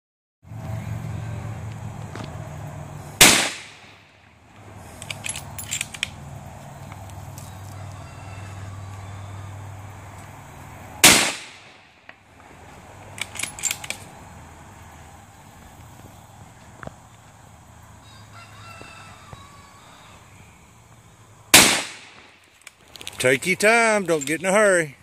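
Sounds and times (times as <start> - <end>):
rifle shots: 3.2 - 4.0, 11.0 - 11.8, 21.5 - 22.3.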